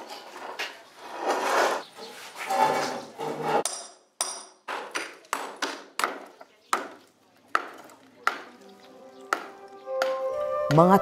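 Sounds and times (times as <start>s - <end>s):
hammers breaking concrete: 3.6s - 8.6s.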